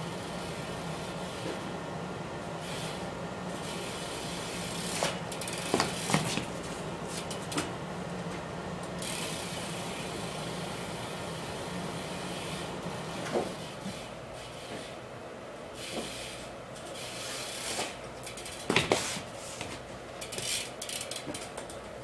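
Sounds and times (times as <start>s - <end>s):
steady hum: 0.0s - 22.0s
bike clattering on floor: 4.8s - 8.4s, 16.8s - 21.8s.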